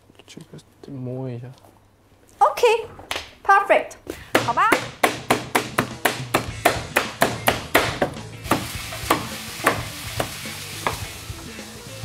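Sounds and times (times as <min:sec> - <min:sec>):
knife chopping chicken on board: 0:04.8 - 0:11.0.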